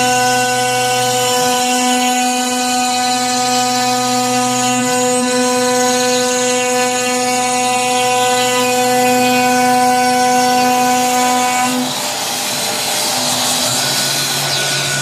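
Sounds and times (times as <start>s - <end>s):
router spindle whining: 0.0s - 15.0s
rushing noise: 11.9s - 15.0s.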